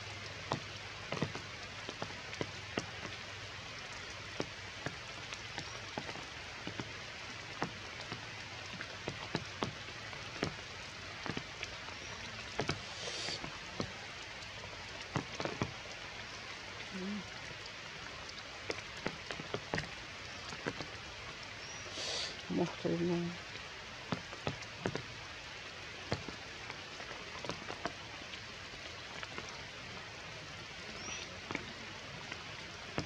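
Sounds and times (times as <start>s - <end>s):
heavy raindrops striking: 0.0s - 33.0s
steady rain: 0.0s - 33.0s.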